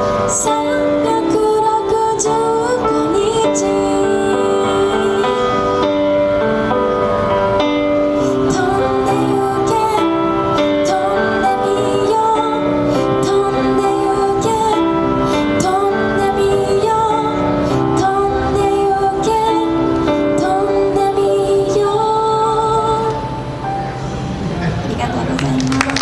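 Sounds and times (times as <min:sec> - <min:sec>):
woman singing a slow ballad: 0:00.0 - 0:06.7, 0:08.0 - 0:23.6
instrumental accompaniment: 0:00.0 - 0:25.3.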